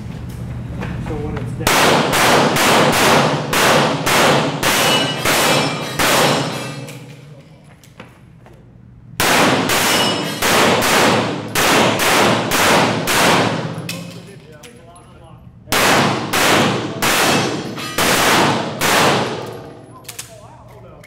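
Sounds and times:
pistol shots echoing indoors: 1.6 - 7.2, 9.2 - 14.3, 15.7 - 20.4.

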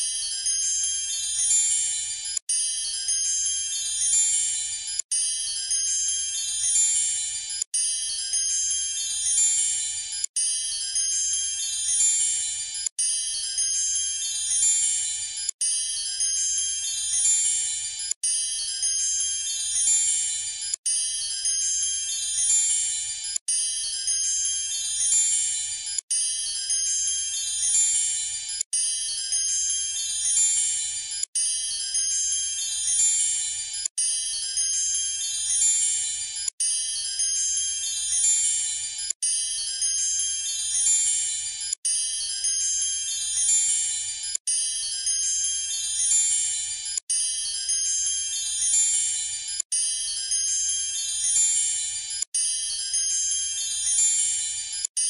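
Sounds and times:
shimmering chime-like music: 0.0 - 55.0.

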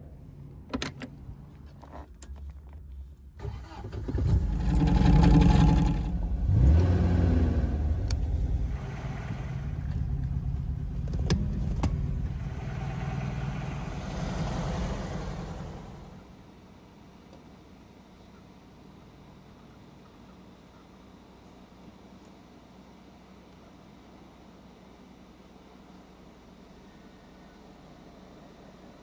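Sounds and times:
car engine starting and idling: 0.4 - 16.6.

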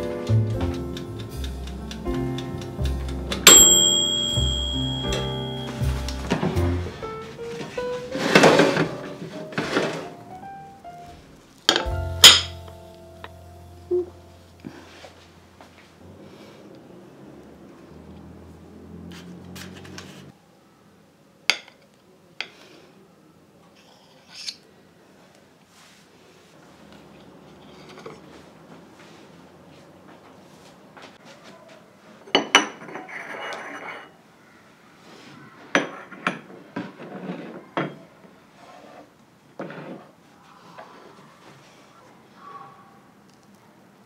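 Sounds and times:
metal spoon clinking on plate: 3.5 - 5.7.

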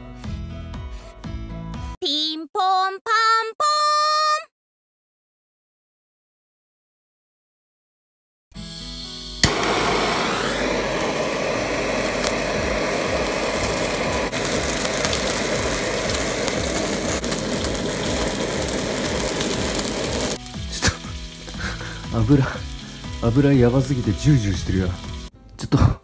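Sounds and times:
gas torch hissing: 9.3 - 25.3
gas torch ignition click: 9.4 - 21.8
fish fat sizzling: 9.4 - 25.3.

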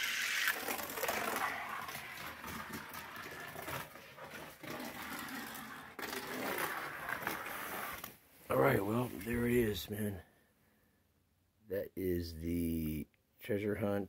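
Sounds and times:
clicks and knocks on toy track: 0.0 - 8.1
toy car wheels whirring on track: 0.0 - 8.1.

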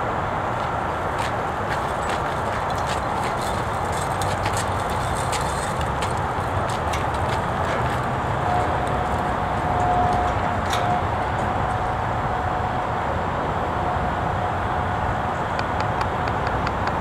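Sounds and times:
vehicle engine rumble: 0.0 - 17.0
cart rolling over pavement: 0.1 - 12.4.

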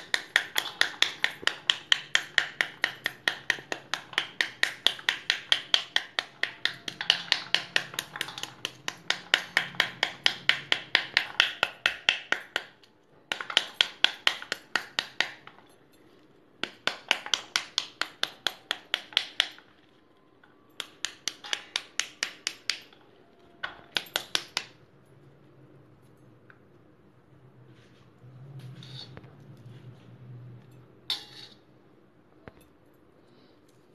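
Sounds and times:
tapping on pomegranate: 0.0 - 15.8.

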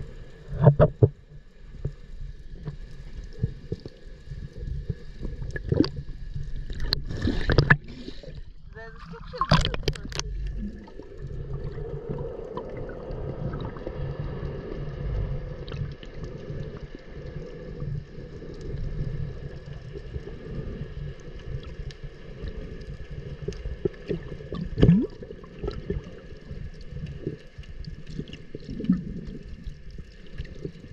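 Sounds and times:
muffled underwater sloshing: 0.0 - 30.9
bubbling gurgle: 3.2 - 30.9
small clicks and bubble pops: 4.7 - 7.8, 21.4 - 30.9.

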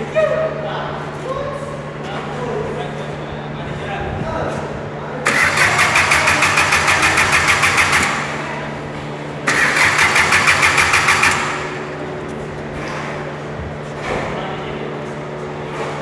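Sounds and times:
starter motor cranking engine: 5.2 - 8.7, 9.5 - 12.0.

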